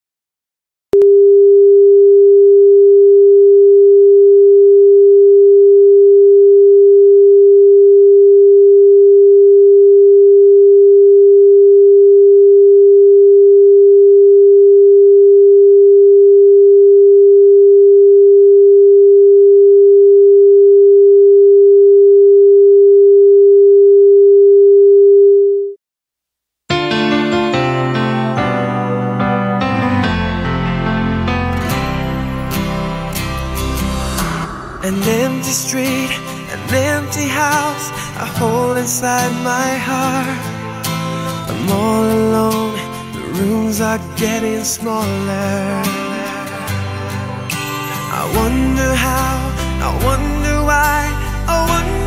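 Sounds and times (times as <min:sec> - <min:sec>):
piano music: 0:26.7 - 0:37.8.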